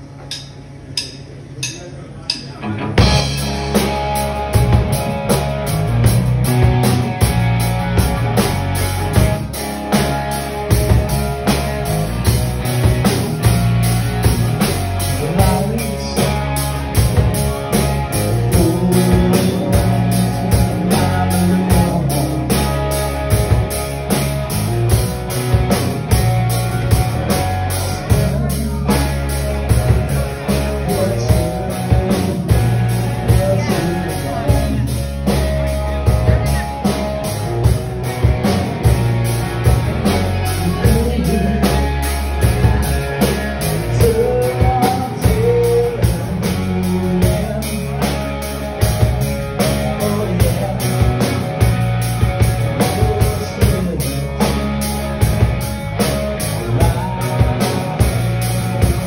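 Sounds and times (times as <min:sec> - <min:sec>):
rock band playing: 0:00.0 - 0:59.0
drumstick clicks: 0:00.2 - 0:02.6.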